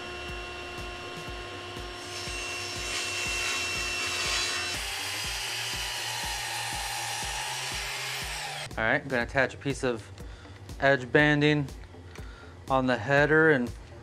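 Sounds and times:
table saw whining: 0:00.0 - 0:08.7.

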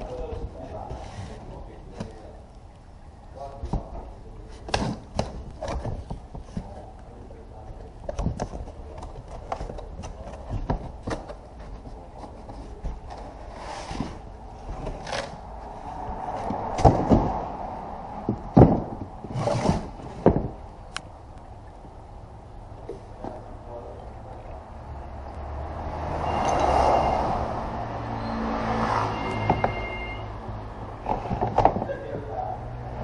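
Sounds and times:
cardboard rustling and scraping: 0:00.0 - 0:02.3, 0:03.6 - 0:17.6, 0:18.2 - 0:20.6
knocks: 0:18.2 - 0:19.2.

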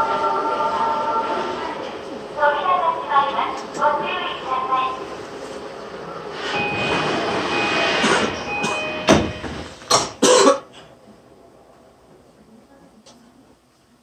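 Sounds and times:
busy platform noise: 0:00.0 - 0:14.0
steady high tone: 0:06.4 - 0:09.8
train doors thumping shut: 0:06.6 - 0:10.3.

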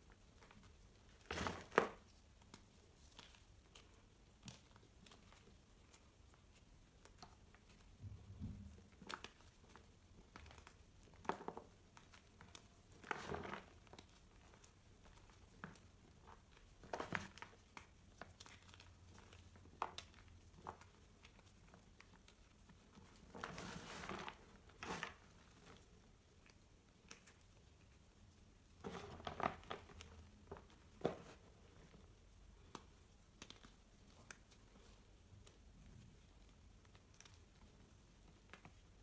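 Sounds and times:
chalk crumbling and crunching: 0:00.1 - 0:08.0.

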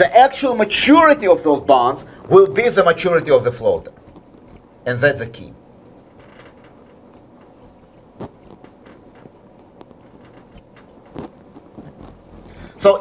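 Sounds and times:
marker writing on glass: 0:02.6 - 0:04.7, 0:05.8 - 0:12.8
marker squeaks: 0:02.6 - 0:04.8, 0:05.8 - 0:12.9.

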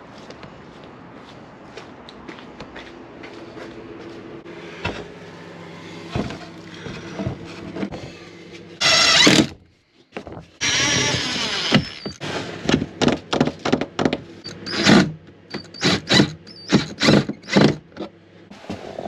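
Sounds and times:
cordless drill driving screws: 0:08.8 - 0:09.5, 0:10.6 - 0:12.2.

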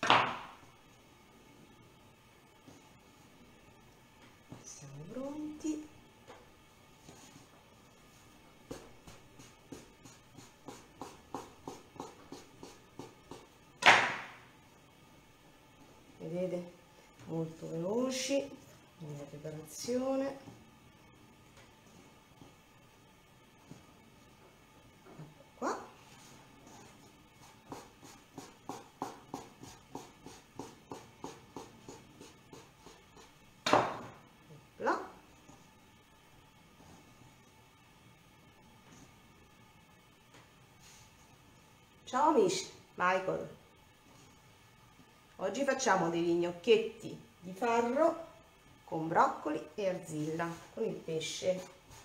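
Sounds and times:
knife chopping dough on wooden board: 0:00.0 - 0:00.6, 0:08.6 - 0:14.4, 0:27.5 - 0:34.1.

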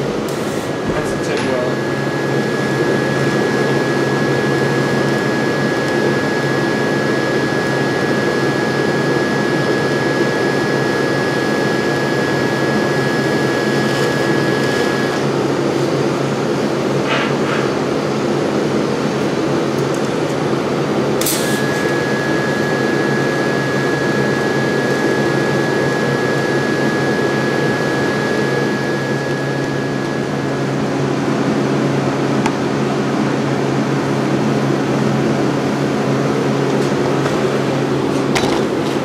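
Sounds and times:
welding arc hiss: 0:00.0 - 0:15.2, 0:21.2 - 0:30.8
faint high whine: 0:00.0 - 0:16.9, 0:17.8 - 0:36.6
low electrical hum: 0:00.0 - 0:39.0.

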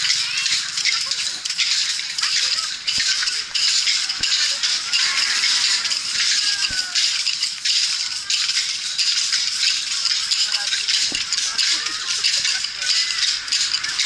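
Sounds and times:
bamboo sticks rattling: 0:00.0 - 0:14.0.

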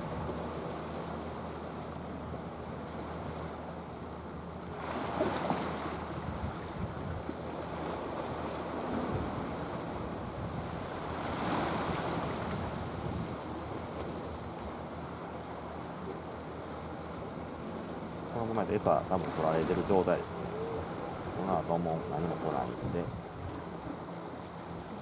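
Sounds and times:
sea water lapping: 0:00.0 - 0:25.0
wind rumbling on microphone: 0:05.0 - 0:14.8, 0:19.4 - 0:24.2.

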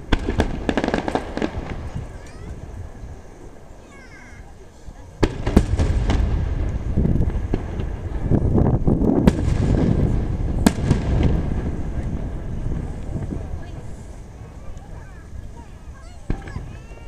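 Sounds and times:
firework shells bursting: 0:00.0 - 0:03.8, 0:05.2 - 0:17.0
low rumble of booms: 0:05.2 - 0:17.0.

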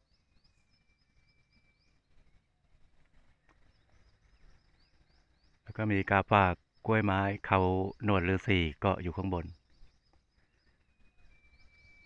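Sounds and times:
long thin whistled note: 0:10.9 - 0:12.0.

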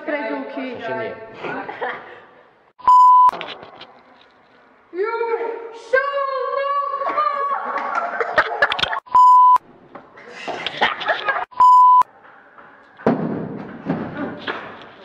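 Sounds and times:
censor bleep tones: 0:02.8 - 0:03.4, 0:09.1 - 0:09.6, 0:11.5 - 0:12.1.

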